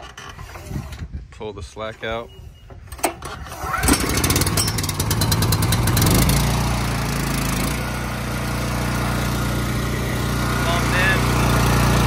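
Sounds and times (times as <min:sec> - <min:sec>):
recoil starter yank: 0:02.4 - 0:12.0
gas engine running: 0:03.5 - 0:12.0.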